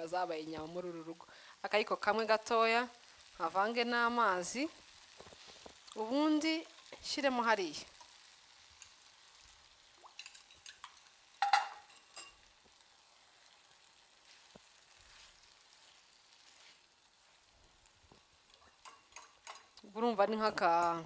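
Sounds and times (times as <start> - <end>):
stew sizzling in a frying pan: 0.0 - 21.0.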